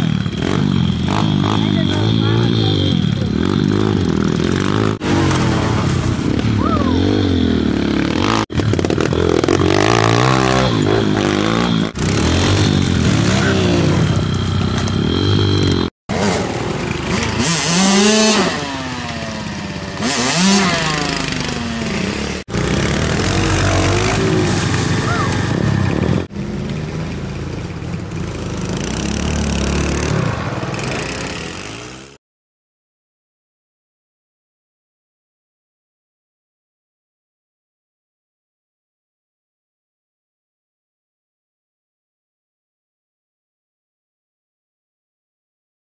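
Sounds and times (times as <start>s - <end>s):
pit bike engines revving: 0.0s - 32.2s.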